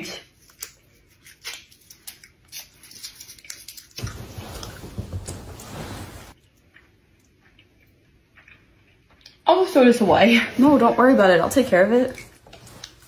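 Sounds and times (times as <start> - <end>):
rustling: 1.3 - 6.4.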